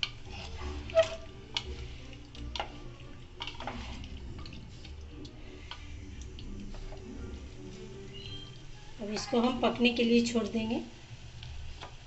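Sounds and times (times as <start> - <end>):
spatula scraping a pot: 0.0 - 5.9
meat sizzling: 0.0 - 12.0.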